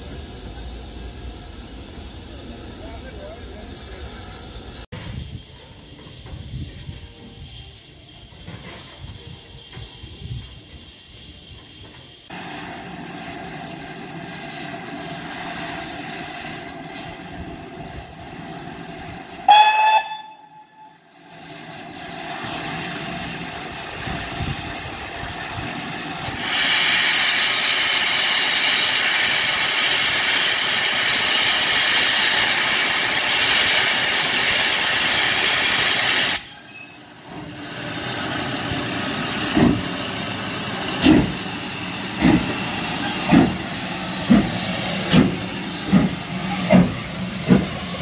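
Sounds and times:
steam locomotive whistle blast: 19.4 - 21.2, 34.6 - 37.2
steam hissing from drain cocks: 21.2 - 48.0.

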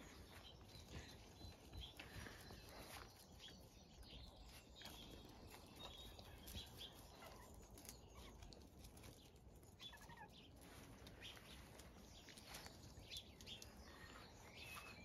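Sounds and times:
faint bird chirps: 9.8 - 15.0.

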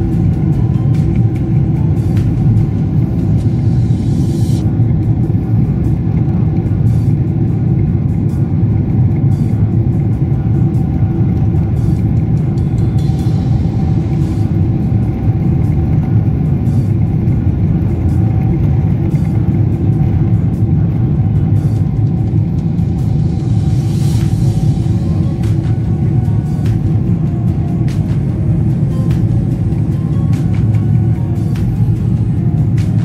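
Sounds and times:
jet engines at takeoff thrust: 0.0 - 33.0
wheels rumbling on runway: 0.0 - 33.0.

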